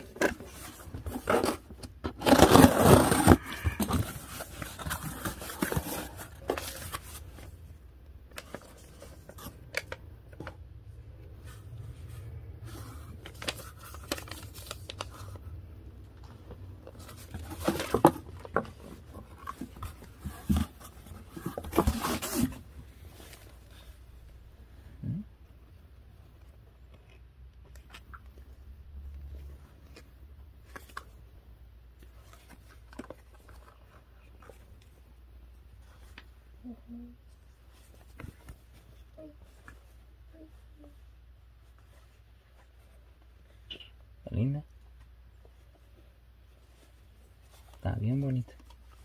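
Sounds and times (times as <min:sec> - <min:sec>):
paper and packaging crinkling: 0:00.0 - 0:07.6, 0:11.5 - 0:15.5, 0:16.5 - 0:24.0
cardboard box tearing: 0:00.1 - 0:06.9, 0:19.4 - 0:22.6.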